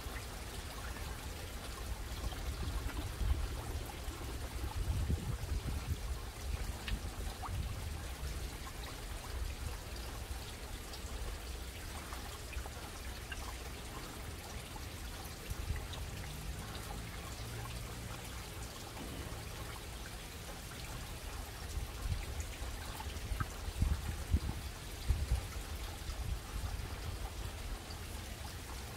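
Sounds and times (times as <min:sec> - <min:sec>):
low steady rumble: 0:00.0 - 0:28.9
small drips: 0:00.0 - 0:28.9
water trickling and splashing: 0:00.0 - 0:28.9.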